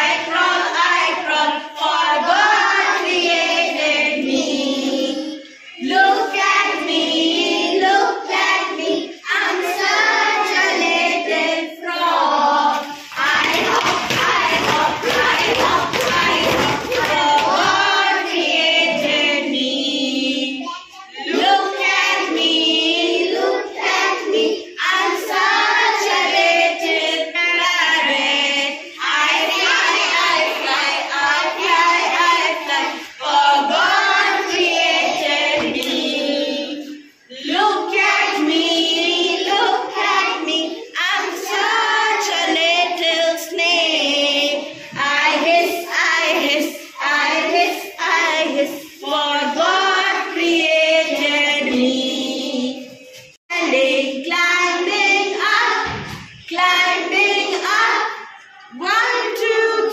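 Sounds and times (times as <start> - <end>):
children singing in unison: 0.0 - 59.9.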